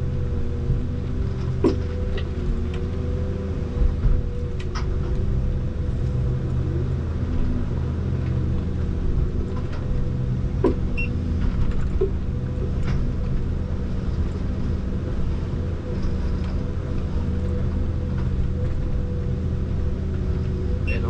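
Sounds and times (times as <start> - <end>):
diesel engine and hydraulics running: 0.0 - 21.0
sharp knocks and clicks: 10.6 - 13.1.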